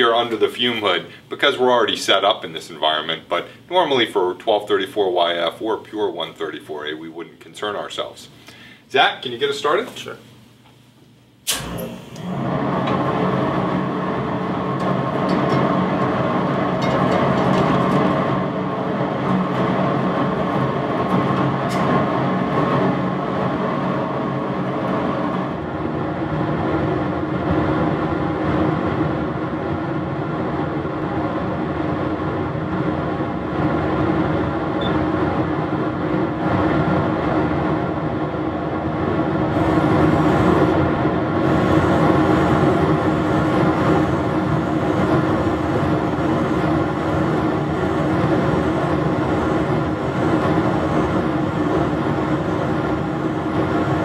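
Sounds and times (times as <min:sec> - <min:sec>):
exhaust blower humming: 0:11.3 - 0:54.0.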